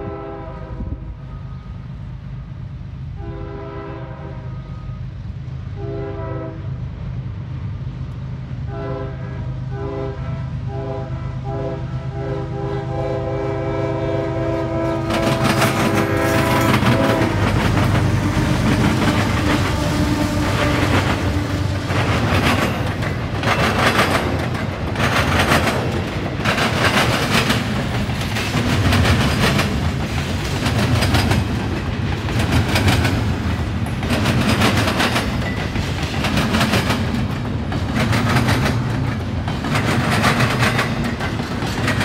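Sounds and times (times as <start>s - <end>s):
locomotive air horn blasts: 0.0s - 1.7s, 3.2s - 5.0s, 5.7s - 6.8s, 8.7s - 22.3s
diesel engines running: 11.4s - 34.9s
train wheels clattering: 14.2s - 42.0s.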